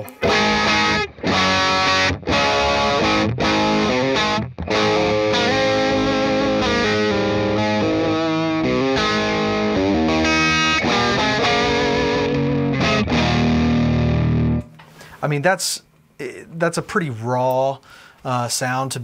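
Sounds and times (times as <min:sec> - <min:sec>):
distorted electric guitar chords: 0:00.0 - 0:14.8.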